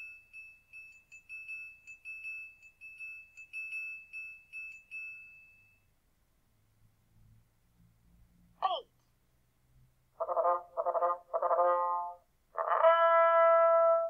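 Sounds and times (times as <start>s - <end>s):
triangle ringing: 0.0s - 6.0s.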